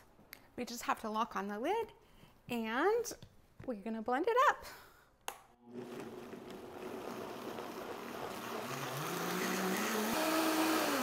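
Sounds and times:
blender motor blending soup: 5.6s - 11.0s.

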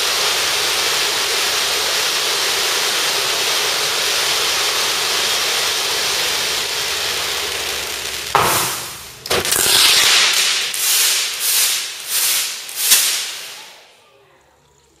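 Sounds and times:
hissing spark bursts: 0.0s - 13.9s
spark fountain hissing: 0.0s - 14.0s
sharp pyrotechnic bang: 8.3s - 13.7s.

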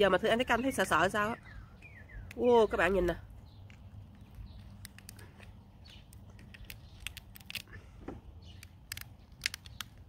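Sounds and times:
lobster shell cracking: 4.5s - 7.8s, 8.4s - 10.0s.

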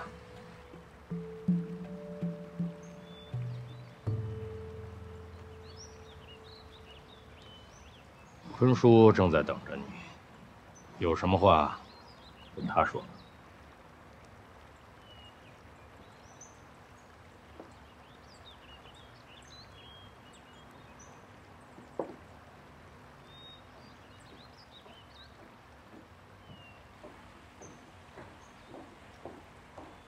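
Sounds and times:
small birds chirping: 0.0s - 30.0s
footsteps: 24.3s - 30.0s.

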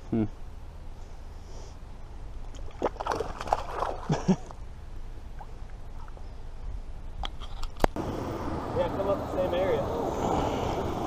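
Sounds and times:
water splashing beside a kayak: 2.5s - 4.6s.

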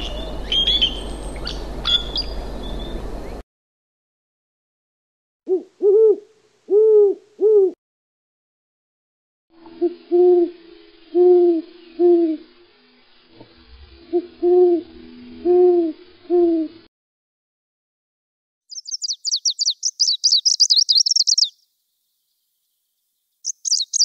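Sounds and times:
owl hooting: 5.5s - 7.8s, 9.7s - 12.5s, 14.1s - 16.8s
background hiss: 9.6s - 14.9s, 18.7s - 24.0s.

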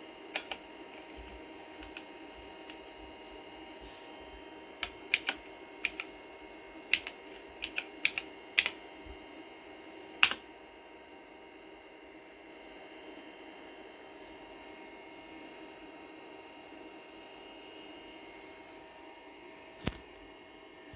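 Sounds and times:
faint steady hum: 0.0s - 20.9s
keyboard key clicks: 0.4s - 0.6s, 4.8s - 6.1s, 6.9s - 8.8s.

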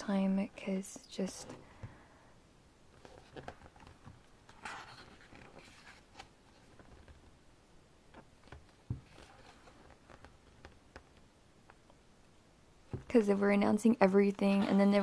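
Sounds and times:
paper pages rustling: 2.9s - 7.3s, 8.2s - 11.2s.

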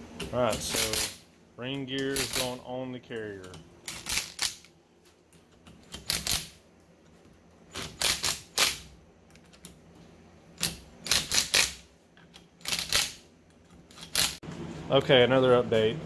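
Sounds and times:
wrench clicking rapidly: 10.6s - 11.8s.

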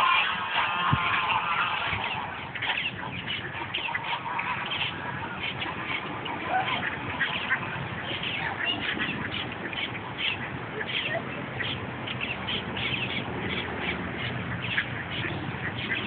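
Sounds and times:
birds calling: 0.0s - 16.0s
ducks quacking: 0.0s - 16.0s.

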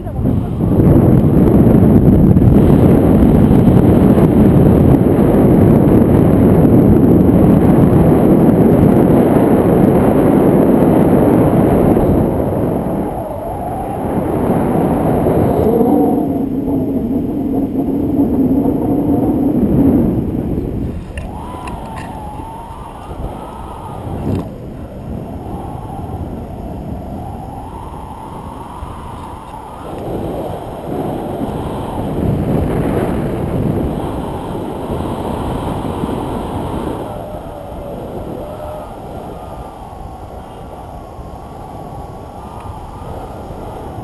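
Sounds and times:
faint wavering whistle: 0.0s - 44.0s
wind buffeting microphone: 0.0s - 44.0s.

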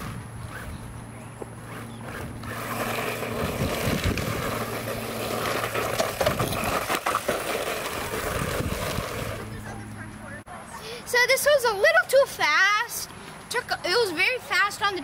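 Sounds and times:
rc truck motor: 0.0s - 9.8s
tyres crunching wood chips: 1.7s - 9.5s.

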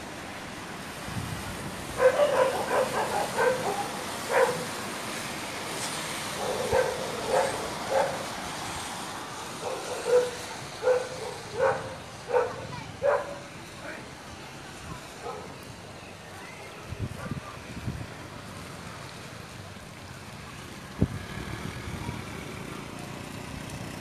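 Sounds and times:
steady background noise: 0.0s - 24.0s
dog barking: 2.0s - 4.7s, 6.4s - 8.3s, 9.6s - 13.5s, 15.2s - 15.5s.

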